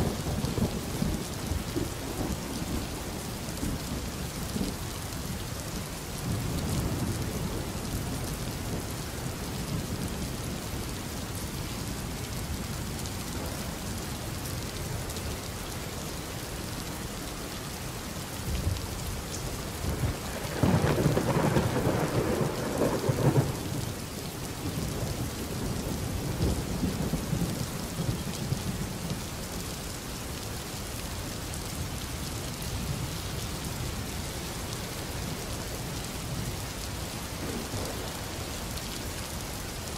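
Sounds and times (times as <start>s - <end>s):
steady rain: 0.0s - 39.9s
thunder rolling: 19.9s - 23.6s.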